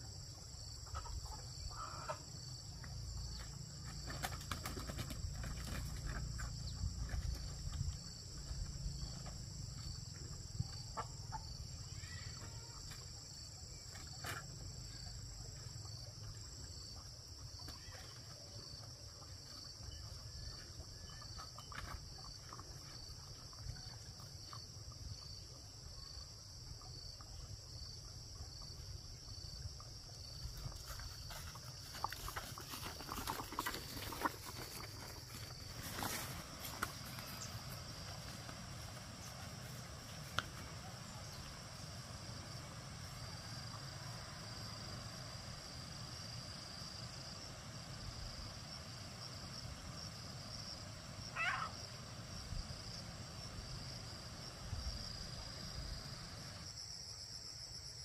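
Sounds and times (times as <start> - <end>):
insect chorus buzzing: 0.0 - 58.0.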